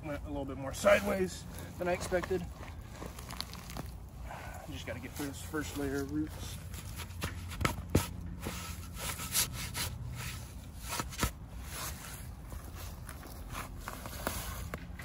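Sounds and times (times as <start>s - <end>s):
scraping and tearing of roots: 0.8s - 15.0s.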